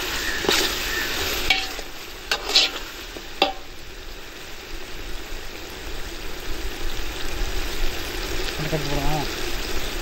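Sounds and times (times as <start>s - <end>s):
masala sizzling in oil: 0.0s - 10.0s
metal ladle knocking pot: 1.5s - 1.9s, 3.4s - 3.7s.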